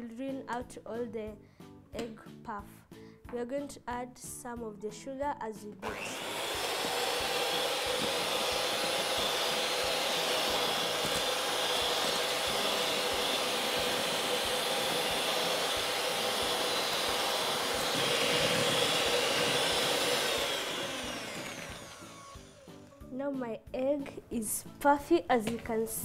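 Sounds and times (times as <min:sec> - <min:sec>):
electric hand mixer whisking: 0:05.8 - 0:23.1.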